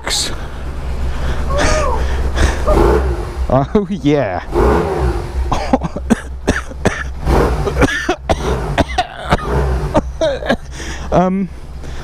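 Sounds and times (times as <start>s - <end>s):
motorcycle engine idling: 0.2s - 12.0s
person coughing: 5.5s - 10.7s.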